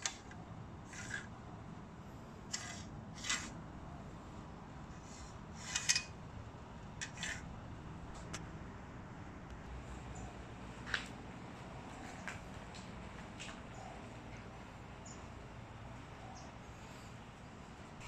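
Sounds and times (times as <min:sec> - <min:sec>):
metal bracket scraping on rail: 0:00.0 - 0:01.3, 0:02.5 - 0:03.6, 0:05.0 - 0:06.2, 0:07.0 - 0:07.5.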